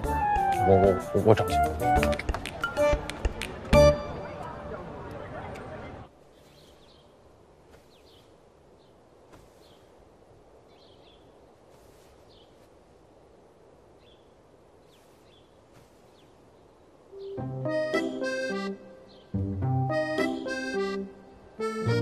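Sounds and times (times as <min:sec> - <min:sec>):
accordion music: 0:00.0 - 0:03.1, 0:03.7 - 0:04.7, 0:17.2 - 0:22.0
small birds chirping: 0:05.1 - 0:21.1.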